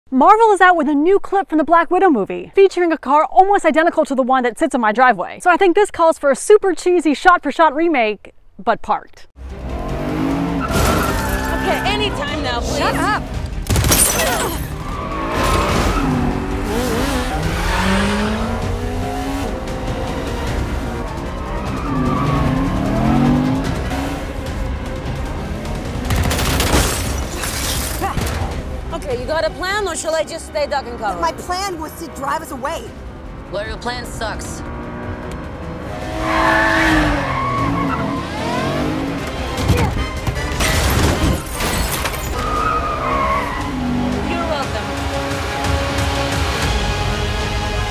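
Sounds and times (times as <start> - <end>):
car engine revving: 9.4 - 13.9, 14.6 - 27.4, 28.5 - 41.5, 42.4 - 47.9
music: 9.4 - 47.9
crash and debris clatter: 10.6 - 11.6, 25.0 - 28.9, 39.2 - 42.6
tyres squealing: 10.6 - 13.3, 21.0 - 23.2, 36.0 - 44.5.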